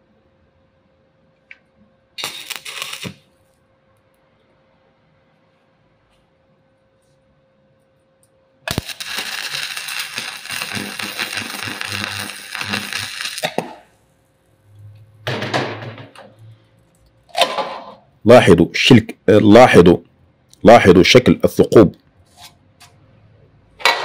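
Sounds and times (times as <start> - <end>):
welding arc crackling hiss: 2.2 - 3.6, 8.6 - 14.4.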